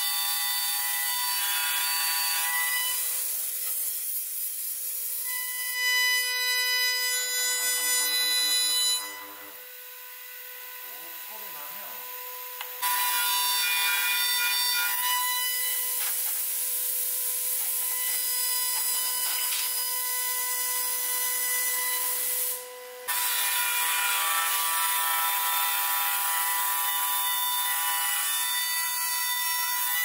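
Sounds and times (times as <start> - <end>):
router bit cutting wood: 0.0 - 30.0.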